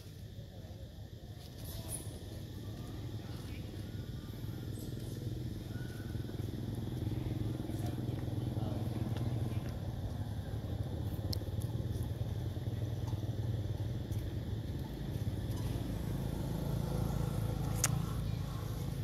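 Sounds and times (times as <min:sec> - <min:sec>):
engine running: 0:02.2 - 0:19.0
faint sharp clicks: 0:17.6 - 0:18.0.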